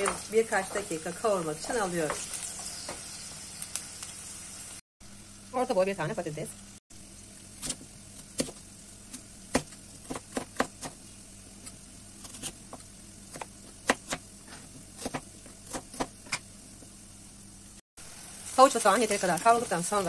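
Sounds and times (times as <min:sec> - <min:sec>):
blade chopping potato on wooden board: 0:07.6 - 0:11.0, 0:12.2 - 0:16.4.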